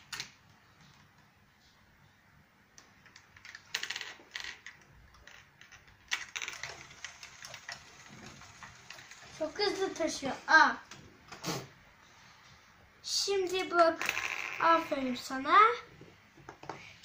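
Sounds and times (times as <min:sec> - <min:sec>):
plastic clatters: 0:03.1 - 0:09.4
toy robot clicking and rattling: 0:04.5 - 0:10.1.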